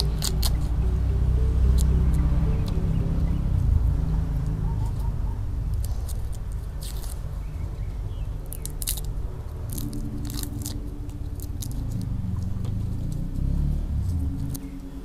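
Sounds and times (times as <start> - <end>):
knife scraping garlic skins: 0.0 - 0.8, 5.7 - 7.8, 8.4 - 12.1
low rumble: 0.0 - 15.0.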